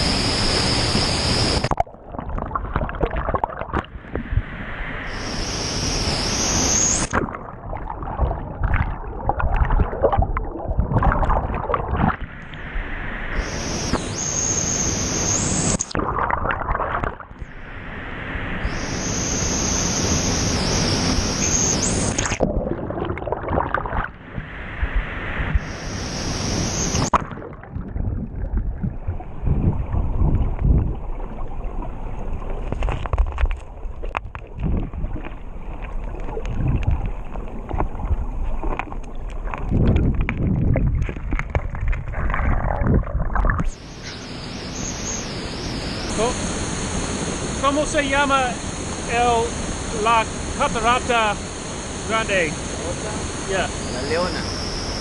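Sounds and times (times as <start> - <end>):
underwater bubbling: 0.0 - 55.0
muffled underwater rumble: 6.1 - 55.0
waterfall rushing: 43.8 - 55.0.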